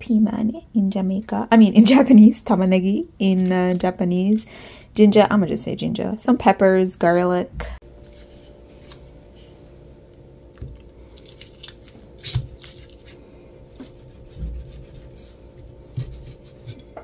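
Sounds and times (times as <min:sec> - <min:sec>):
knife slicing vegetables: 0:11.4 - 0:17.0.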